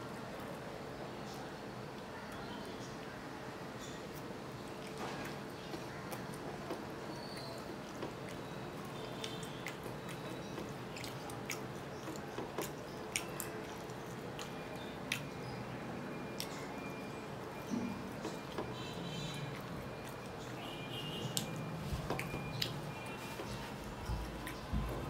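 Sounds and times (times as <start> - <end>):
person chewing and smacking: 3.8 - 25.0
mouth and finger clicks: 9.0 - 15.5.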